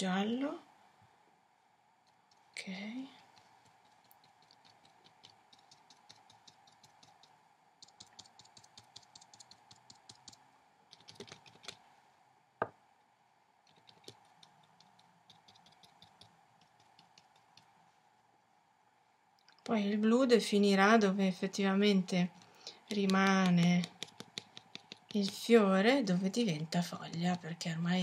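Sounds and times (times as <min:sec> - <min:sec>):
brush dabbing paint onto paper: 0:02.0 - 0:11.8, 0:13.7 - 0:17.9, 0:22.1 - 0:28.0.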